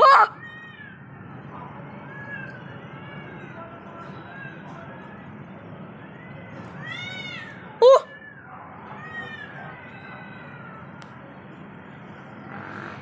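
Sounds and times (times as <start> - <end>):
cat screeching: 0.0 - 1.1, 6.2 - 10.9
cats yowling: 0.0 - 1.3, 6.1 - 11.0.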